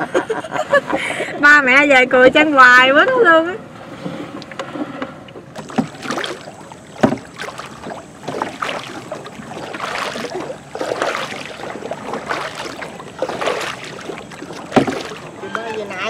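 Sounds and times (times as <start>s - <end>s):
paddle splashing in water: 3.8s - 16.0s.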